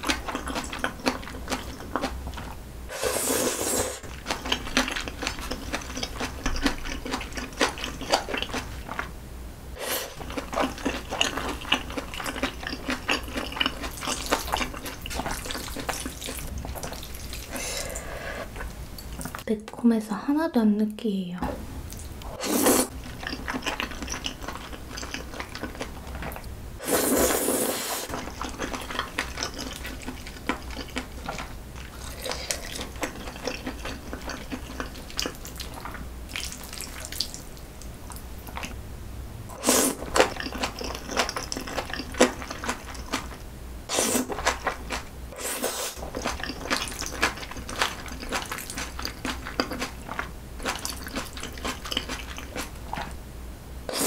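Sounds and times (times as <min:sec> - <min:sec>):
wet chewing and smacking: 0:00.0 - 0:02.6, 0:04.0 - 0:09.1, 0:10.1 - 0:17.6, 0:22.9 - 0:26.5, 0:28.1 - 0:38.8, 0:39.9 - 0:43.4, 0:44.0 - 0:45.1, 0:45.9 - 0:53.2
noodle slurps: 0:02.9 - 0:04.5, 0:22.3 - 0:25.8, 0:26.8 - 0:37.3, 0:39.5 - 0:43.2, 0:43.9 - 0:44.8, 0:45.4 - 0:48.8.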